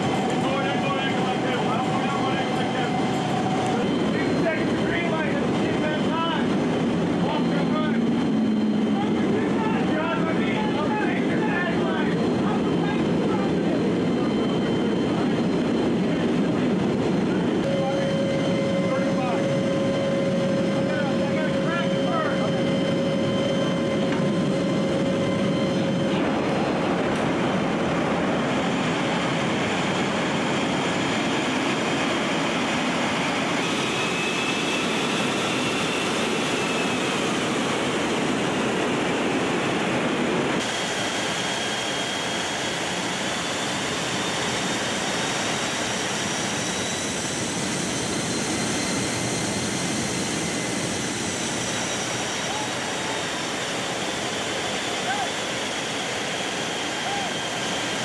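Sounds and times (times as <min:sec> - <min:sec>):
aircraft engine and rushing air: 0:00.0 - 0:58.0
faint high whine: 0:17.3 - 0:31.0.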